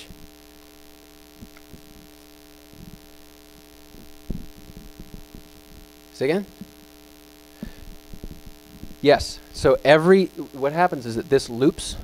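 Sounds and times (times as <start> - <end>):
electrical mains hum: 0.0 - 12.0
soft low thumps: 1.4 - 7.0, 7.6 - 9.3.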